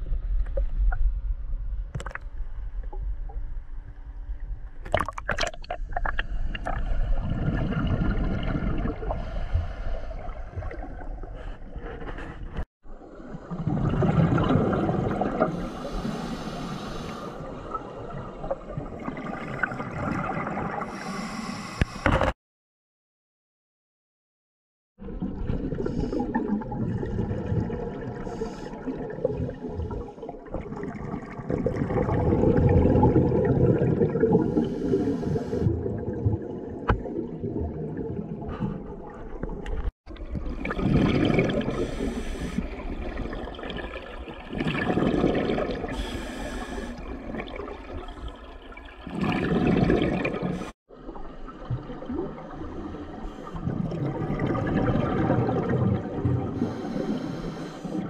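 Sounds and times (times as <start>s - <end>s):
underwater regulator breathing bubbles: 40.6s - 43.0s, 44.6s - 47.4s.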